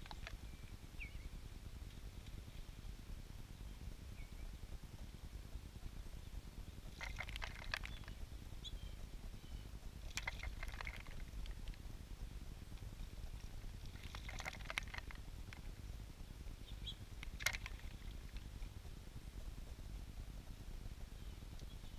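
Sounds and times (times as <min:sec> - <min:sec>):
birds splashing in water: 0:06.8 - 0:08.2, 0:10.0 - 0:11.8, 0:13.5 - 0:15.6, 0:17.2 - 0:18.6.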